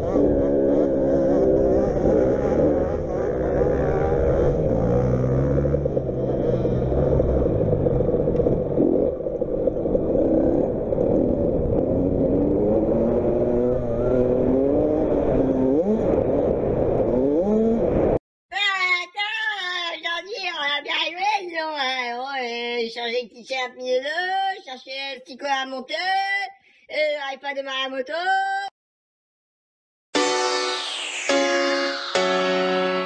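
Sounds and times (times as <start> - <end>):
motocross bike engines revving: 0.0 - 7.9, 10.2 - 16.1, 17.0 - 17.8.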